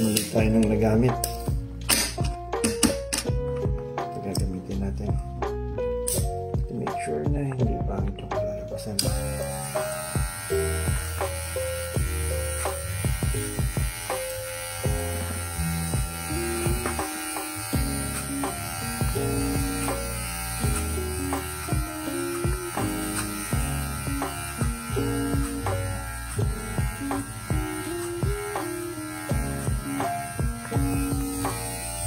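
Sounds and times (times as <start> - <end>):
background music: 0.0 - 32.0
hair clipper running: 9.0 - 32.0.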